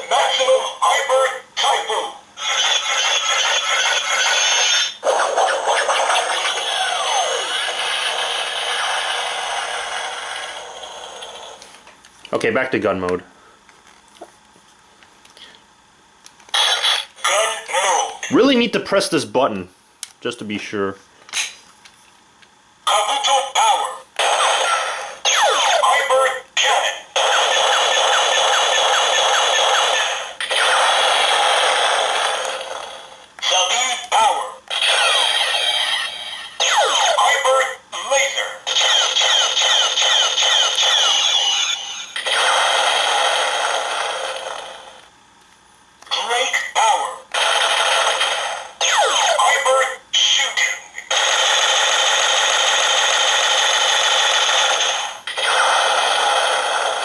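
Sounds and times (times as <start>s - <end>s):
toy electronic blast: 2.4s - 11.5s, 16.5s - 17.1s, 24.2s - 26.1s, 26.7s - 37.4s, 38.6s - 45.0s, 47.3s - 57.0s
toy electronic zaps: 2.4s - 11.5s, 16.5s - 17.2s, 27.2s - 32.8s, 38.6s - 44.8s, 50.2s - 57.0s.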